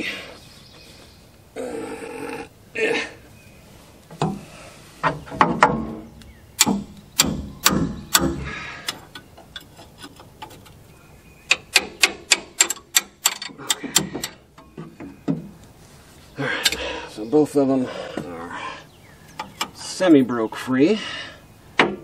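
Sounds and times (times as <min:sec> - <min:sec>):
wrench clicking: 0:11.5 - 0:14.4
metal tools clanking on bolts: 0:11.5 - 0:15.5, 0:16.5 - 0:17.0, 0:19.3 - 0:20.0.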